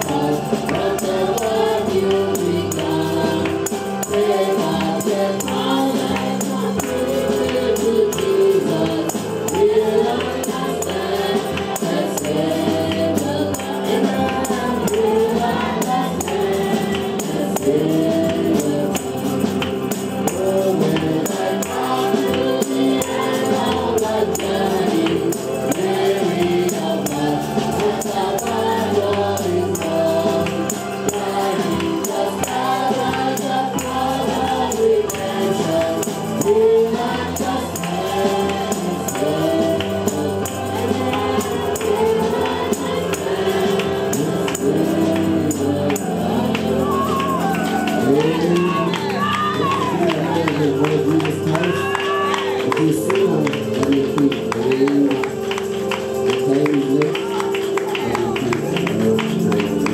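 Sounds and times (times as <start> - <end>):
instrumental accompaniment: 0.0 - 59.9
man singing into microphone: 0.0 - 59.9
tambourine: 0.0 - 59.9
voices singing along: 0.0 - 59.9.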